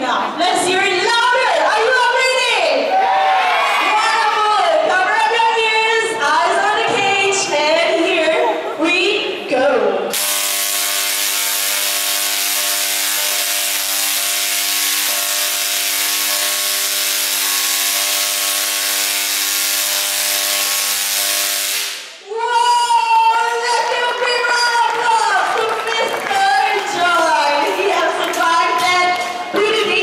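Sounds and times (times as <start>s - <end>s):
tesla coil buzzing crackle: 10.1s - 22.2s.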